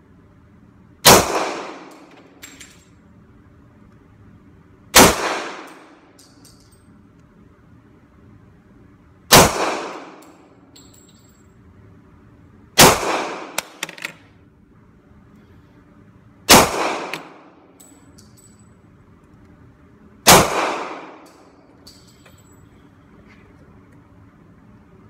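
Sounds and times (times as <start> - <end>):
pistol shots indoors: 1.0 - 2.8, 4.9 - 6.7, 9.3 - 11.3, 12.8 - 13.8, 16.4 - 18.6, 20.2 - 22.1
gunshot reverberation: 1.1 - 2.0, 12.8 - 13.6, 16.5 - 17.5, 20.3 - 21.2
small metallic clinks: 1.9 - 3.1, 5.7 - 7.3, 10.2 - 11.7, 17.7 - 19.5, 21.2 - 23.0.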